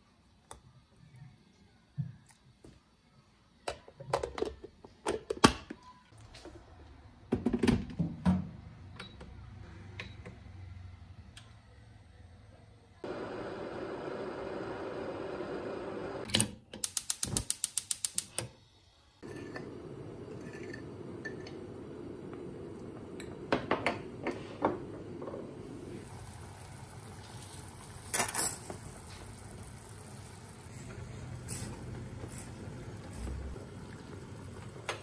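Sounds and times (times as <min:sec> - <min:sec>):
electric kettle rumbling at the boil: 0:13.0 - 0:16.2, 0:19.6 - 0:27.9, 0:28.7 - 0:35.0.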